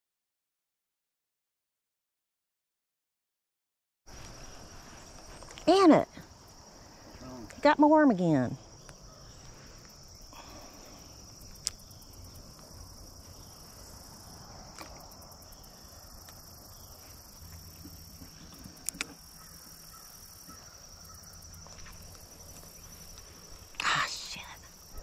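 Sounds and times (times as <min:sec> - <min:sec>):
insects trilling: 0:04.1 - 0:25.0
sharp clicks: 0:18.5 - 0:19.2.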